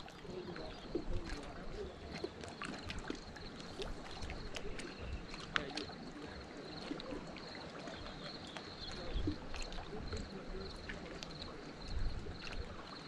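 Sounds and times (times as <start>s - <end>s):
small waves lapping against rocks: 0.0s - 13.0s
low wind rumble on microphone: 8.9s - 13.0s.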